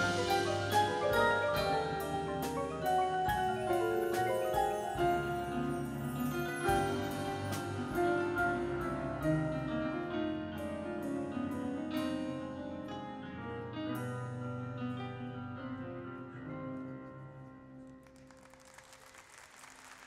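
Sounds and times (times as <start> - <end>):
marimbas: 0.0 - 9.5
piano: 0.0 - 20.0.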